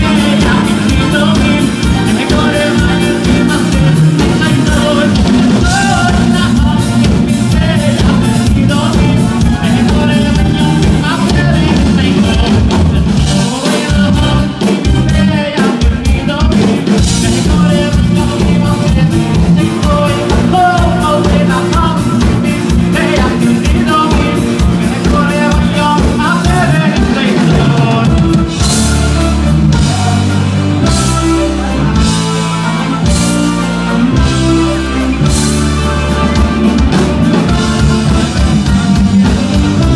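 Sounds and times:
man singing into a microphone: 0.0s - 28.7s
drum kit: 0.0s - 39.9s
heavy bass chords: 0.0s - 39.9s
keyboard: 0.0s - 39.9s.

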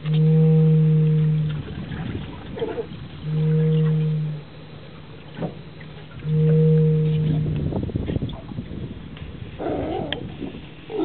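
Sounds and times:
whistle buoy moaning: 0.0s - 11.0s
sea lion barking: 2.5s - 4.4s, 9.6s - 10.3s.

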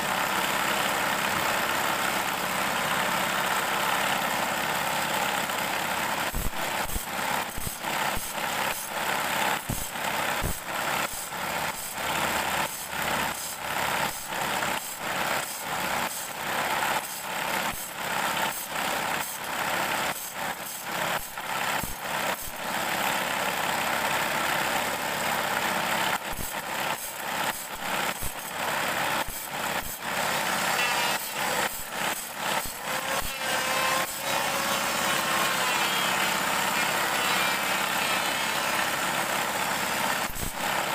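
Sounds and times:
electric motor spinning: 26.2s - 40.9s.

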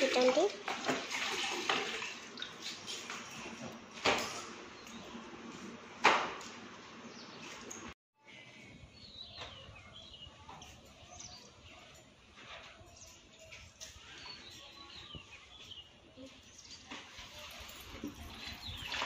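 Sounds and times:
small birds chirping: 7.1s - 17.1s.

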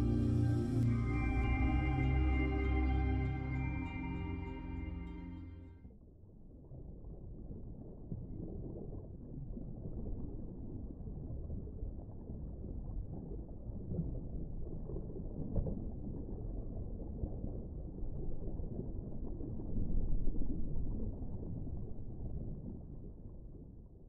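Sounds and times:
underwater rumble: 6.5s - 24.0s.

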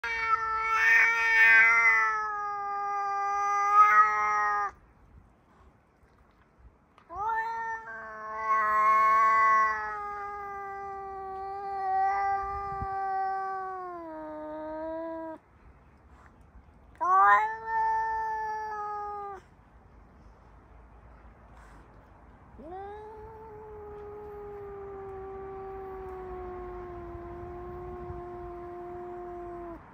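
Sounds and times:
cat yowling: 0.0s - 4.8s, 7.1s - 15.4s, 17.0s - 19.4s, 22.6s - 29.9s.

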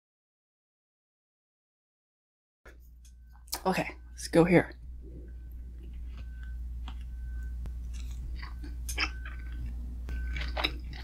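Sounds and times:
low steady hum: 2.7s - 11.0s
close chewing: 5.7s - 11.0s.

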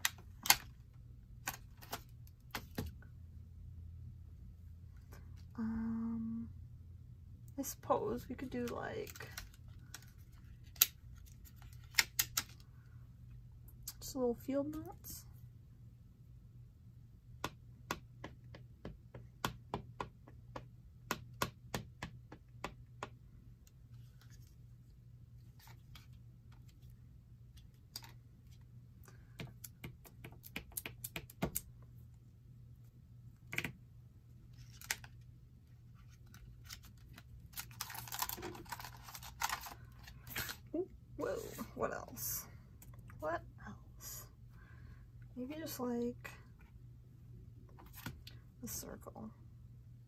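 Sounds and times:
low steady hum: 0.0s - 50.0s
plastic sheet crinkling: 36.0s - 40.6s.

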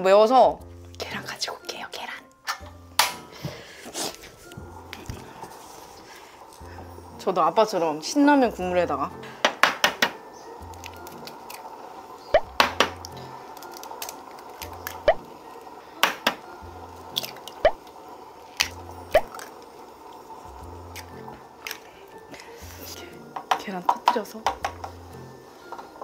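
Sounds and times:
soft background music: 0.0s - 26.0s.

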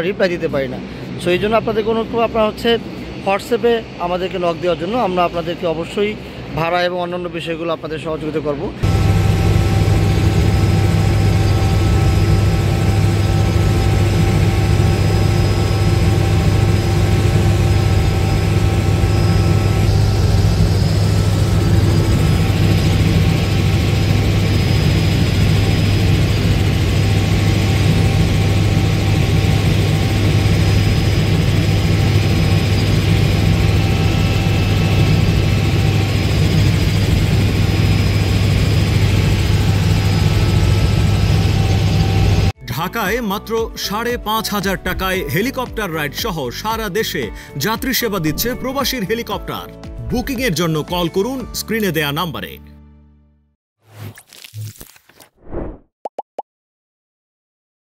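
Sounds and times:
helicopter engine and rotor drone: 0.0s - 42.6s
high-pitched engine whines: 8.4s - 42.6s.

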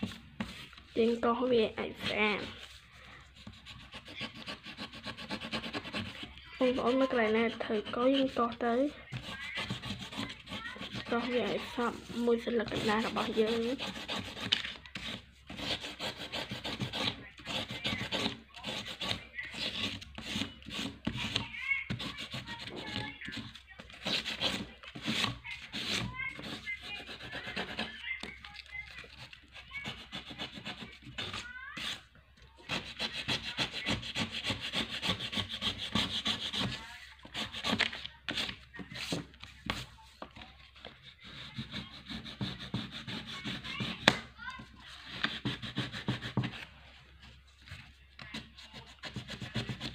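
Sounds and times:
paper scuffing on desk mat: 0.0s - 1.1s, 35.1s - 49.8s
crayon scratching on paper: 0.0s - 49.9s.

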